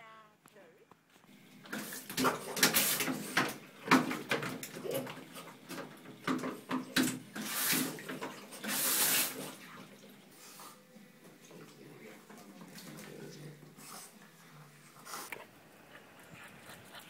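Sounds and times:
short hissing bursts: 8.7 - 9.4.

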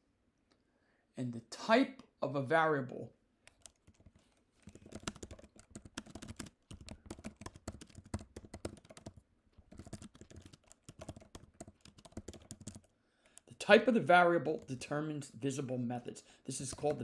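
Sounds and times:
fast typing on keyboard: 3.5 - 13.5, 16.6 - 17.0.

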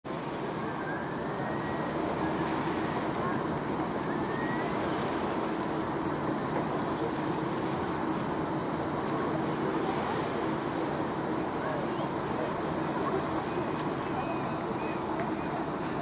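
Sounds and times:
distant traffic rumble: 0.1 - 16.0
faint rising whistles: 0.6 - 2.5.

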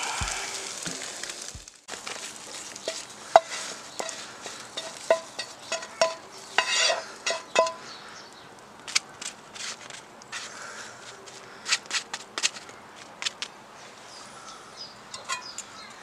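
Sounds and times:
spatula scraping pan: 2.4 - 7.8
spatula knocking metal pan: 2.9 - 7.8.

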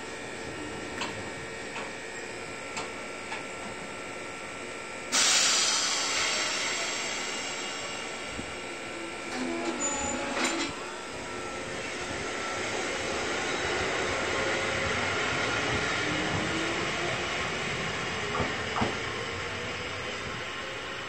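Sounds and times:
train running noise: 0.0 - 21.0
compressed air hiss: 5.1 - 8.3.

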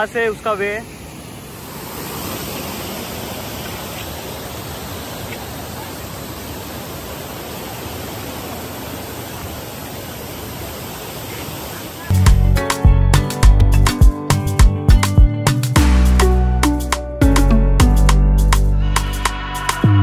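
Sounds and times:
waterfall rushing: 0.0 - 12.1.

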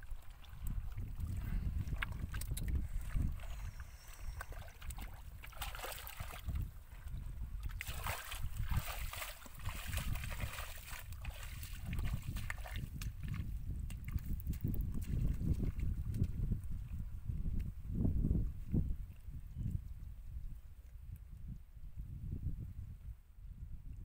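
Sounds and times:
wind rumbling on microphone: 0.0 - 24.0
wet footsteps through grass: 7.6 - 16.7.

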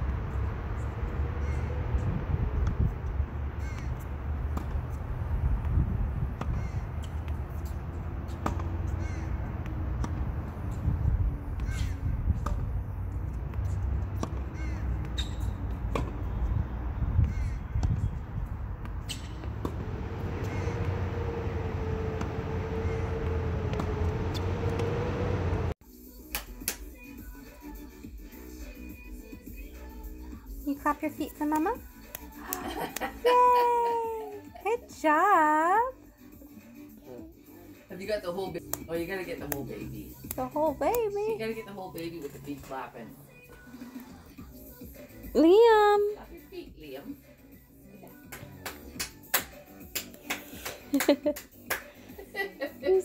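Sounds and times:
low rumble: 0.0 - 25.8
birds calling: 0.8 - 2.0, 3.0 - 5.1, 6.1 - 10.7, 11.3 - 25.4
tennis ball bouncing on hard court: 3.8 - 5.0, 6.3 - 10.8, 11.5 - 21.0
racket hitting tennis ball: 6.3 - 10.8, 11.5 - 16.3.

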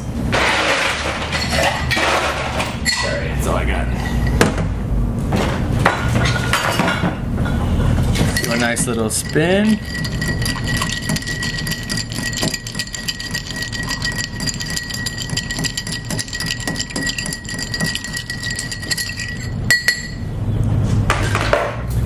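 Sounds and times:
ice cubes clinking in glass: 8.3 - 20.2.

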